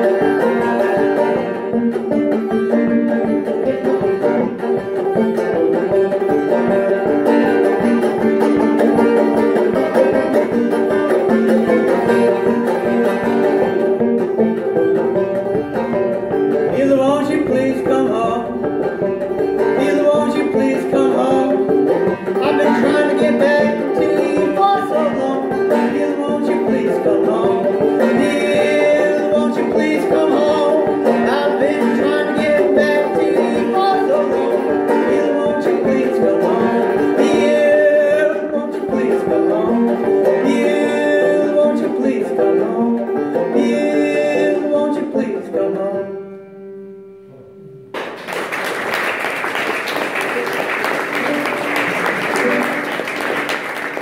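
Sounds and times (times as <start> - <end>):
banjo picking: 0.0 - 54.0
audience applause: 48.0 - 54.0.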